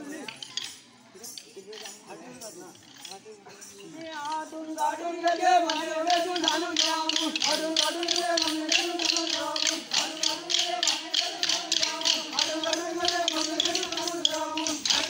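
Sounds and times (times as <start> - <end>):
wooden sticks clacking: 0.1 - 2.0, 5.3 - 15.0
sustained wavering melody: 4.7 - 15.0.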